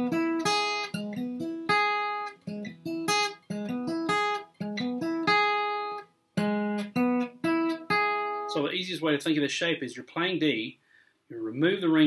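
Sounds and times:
acoustic guitar picking: 0.0 - 8.6.

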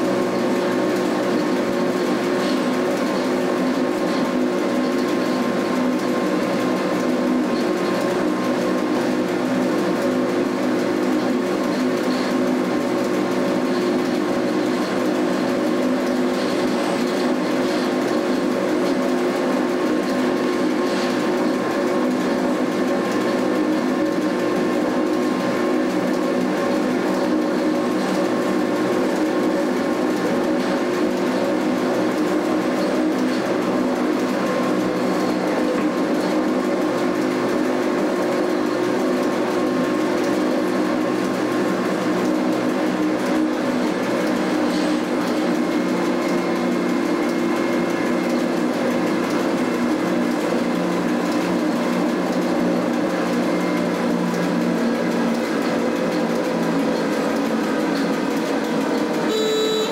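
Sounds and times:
electric train motor hum and rumble: 0.0 - 59.9
held tones: 59.2 - 59.9.

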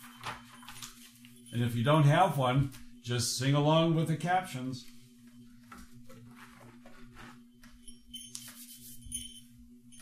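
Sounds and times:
faint rustling and handling: 0.0 - 2.0, 4.8 - 9.6
small bells jingling: 0.0 - 3.2, 7.6 - 10.0
low steady hum: 0.0 - 10.0.

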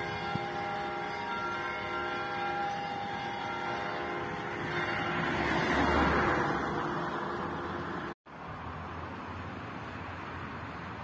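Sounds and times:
church bells ringing: 0.0 - 7.1
passing car road noise: 0.0 - 11.0.

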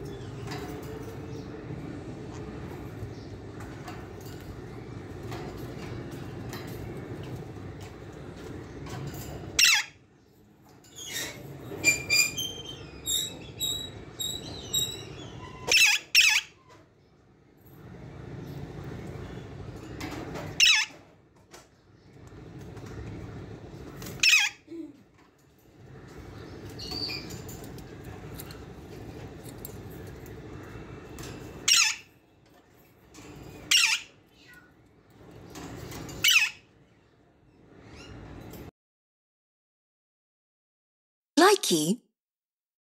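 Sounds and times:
parakeet squawk: 9.6 - 10.0, 15.6 - 16.6, 20.6 - 21.0, 24.2 - 24.6, 31.7 - 32.1, 33.7 - 34.1, 36.2 - 36.6
parakeets screeching: 9.6 - 10.0, 11.9 - 16.6, 20.6 - 21.0, 24.1 - 24.7, 31.7 - 32.1, 33.6 - 34.2, 36.2 - 36.7.

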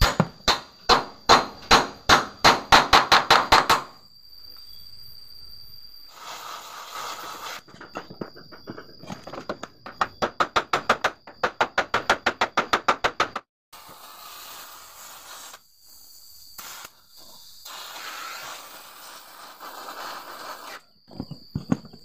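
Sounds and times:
short hiss: 6.1 - 7.6, 13.8 - 20.8.

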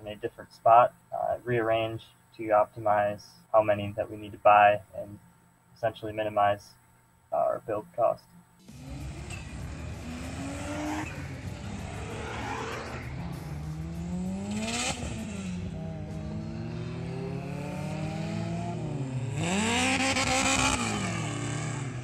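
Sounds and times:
car engine accelerating: 8.6 - 22.0.

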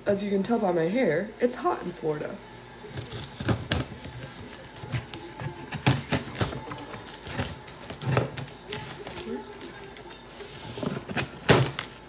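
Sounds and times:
packaging clicks and crinkles: 3.0 - 12.0.

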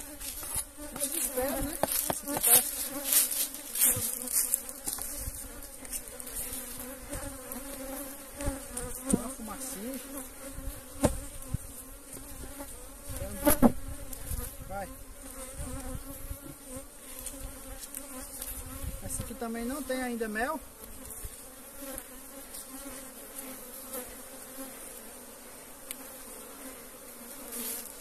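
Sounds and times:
honeybees buzzing: 0.0 - 28.0
hive tool knocking on boxes: 0.3 - 5.2, 8.4 - 9.3, 11.0 - 12.3, 13.4 - 13.9.

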